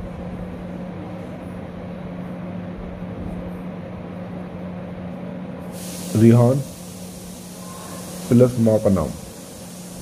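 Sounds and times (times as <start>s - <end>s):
background hum and hiss: 0.0s - 10.0s.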